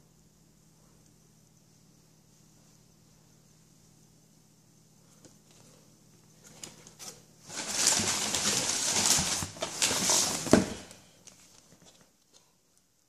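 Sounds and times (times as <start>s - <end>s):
rustling handling noise: 5.1s - 12.6s.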